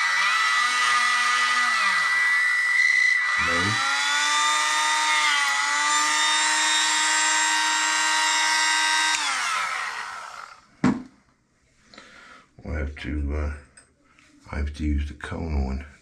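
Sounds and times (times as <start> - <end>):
rotary tool high whine: 0.0 - 10.7.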